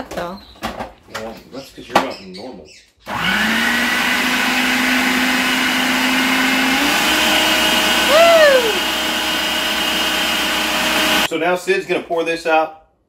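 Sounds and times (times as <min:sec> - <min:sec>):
food processor motor running: 0:03.1 - 0:11.3
rising and falling tone: 0:03.2 - 0:11.3.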